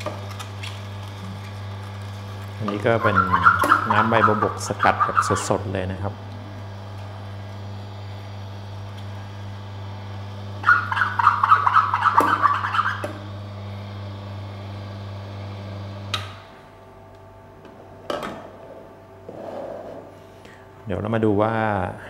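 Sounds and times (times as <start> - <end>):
juicer motor humming: 0.0 - 16.5
leaves crackling and squeaking: 0.3 - 5.6.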